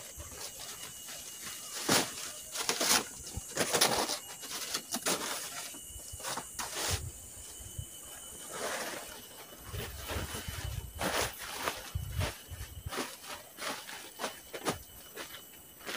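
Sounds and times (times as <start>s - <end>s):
large leaves rustling: 0.0s - 15.9s.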